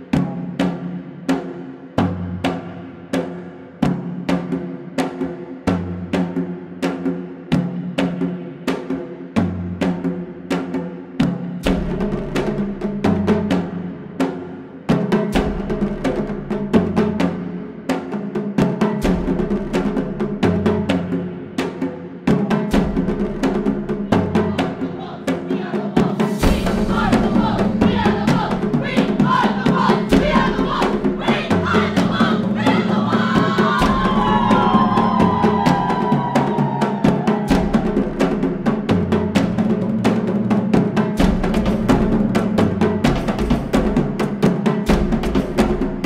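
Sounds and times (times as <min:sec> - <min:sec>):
girls shouting a team cheer: 0:26.9 - 0:37.9.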